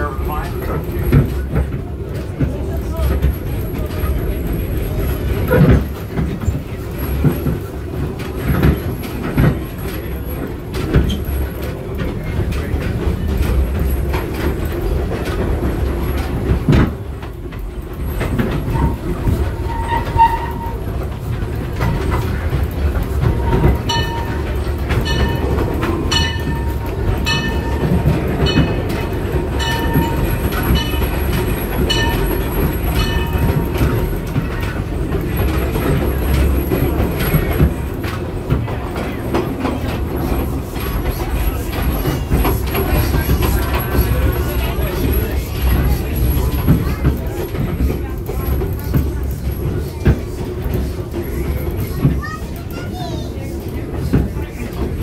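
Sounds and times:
train cars rumbling along track: 0.0 - 55.0
high-pitched wheel squeals: 18.7 - 20.9.

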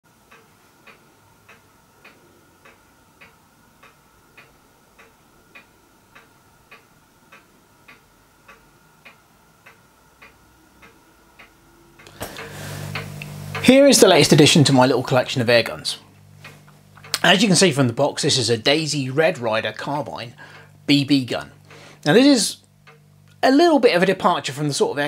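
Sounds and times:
faint hum: 0.1 - 25.0
steady ticking: 0.1 - 25.0.

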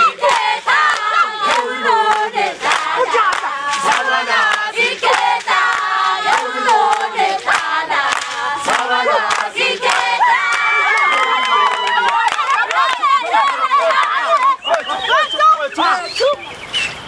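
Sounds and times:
sharp percussive beats: 0.0 - 10.2
group chanting and shouting: 0.0 - 16.4.

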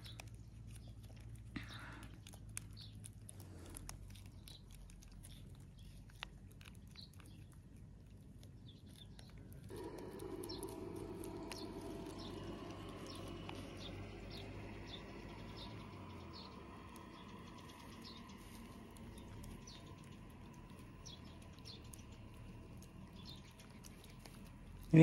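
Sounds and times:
kitten licking and chewing: 0.0 - 25.0
bird chirps: 8.6 - 25.0
low rushing noise: 9.7 - 23.8.

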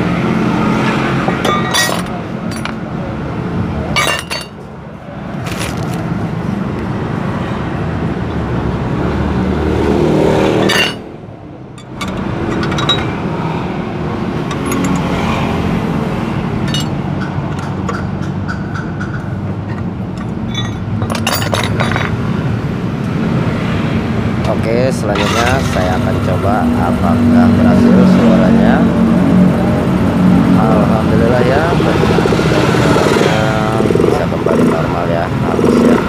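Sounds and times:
sharp metallic clinks: 20.2 - 22.1
scooter engine running: 28.3 - 36.0.

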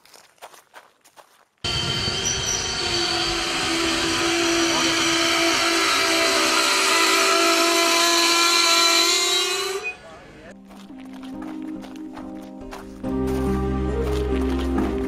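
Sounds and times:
train wheels rumbling on rails: 1.7 - 9.8
high-pitched metallic squeal: 1.7 - 10.1.

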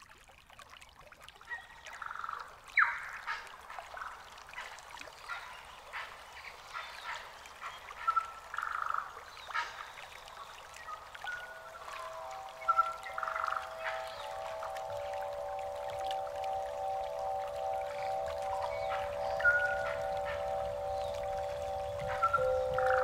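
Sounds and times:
bird singing: 8.0 - 23.0
sustained steady tones: 11.2 - 23.0.

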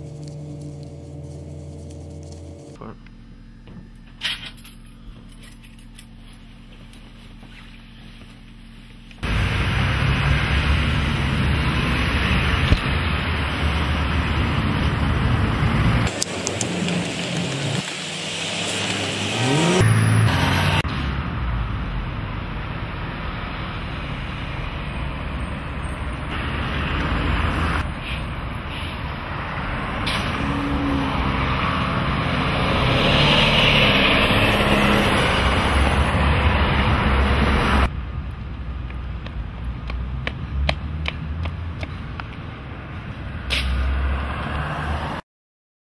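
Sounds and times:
vehicles passing: 9.2 - 45.2.

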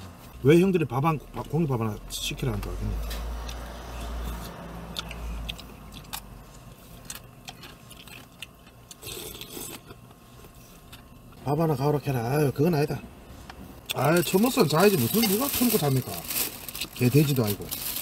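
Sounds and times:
man chewing: 3.4 - 11.4.

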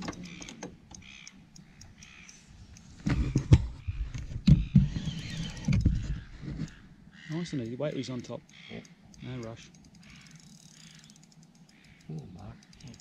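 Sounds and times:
faint short bird-like calls: 10.0 - 13.0.

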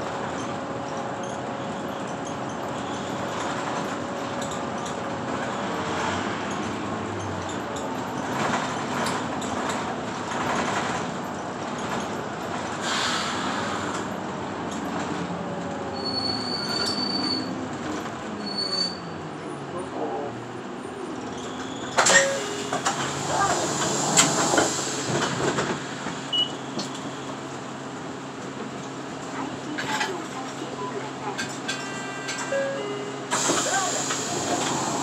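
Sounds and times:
bus engine running: 0.0 - 35.0
road rumble: 0.0 - 35.0.

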